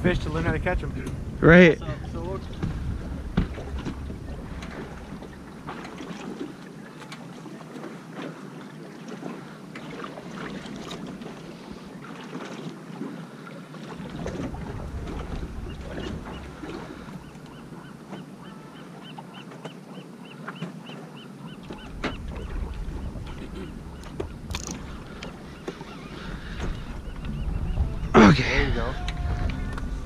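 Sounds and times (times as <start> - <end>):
wind rumbling on microphone: 0.0 - 6.0, 14.0 - 17.8, 21.6 - 30.0
water slapping against boat: 0.0 - 30.0.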